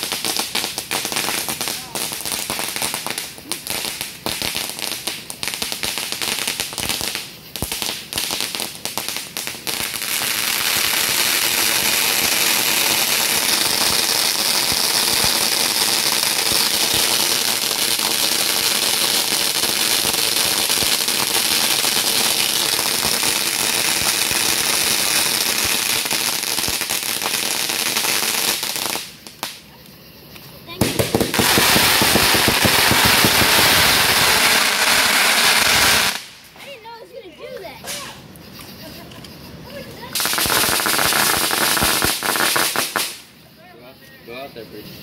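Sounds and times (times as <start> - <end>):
firework crackling pops: 0.0 - 37.0, 37.6 - 44.1
hissing spray of sparks: 40.0 - 43.3.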